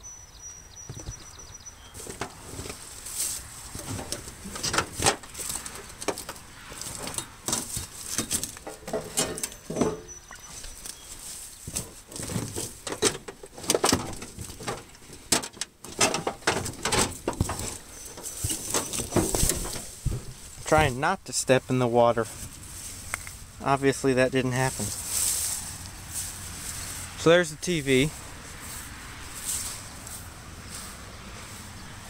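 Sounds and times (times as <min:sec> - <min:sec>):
handling knocks and clicks: 0:00.8 - 0:01.3, 0:02.0 - 0:02.8, 0:03.7 - 0:11.1, 0:11.7 - 0:20.4
footsteps through wet grass: 0:01.9 - 0:04.5, 0:09.5 - 0:12.8, 0:22.2 - 0:23.7, 0:24.6 - 0:32.0.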